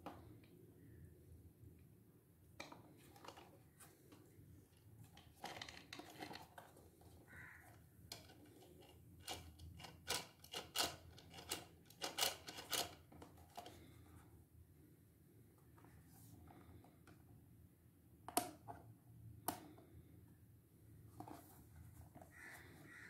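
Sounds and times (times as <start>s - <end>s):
plastic toy clicks and knocks: 8.1s - 13.7s.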